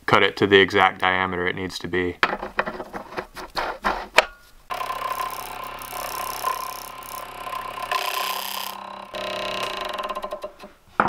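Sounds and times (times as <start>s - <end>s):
lathe motor whine: 4.7s - 10.4s
tool scraping spinning blank: 4.7s - 10.9s.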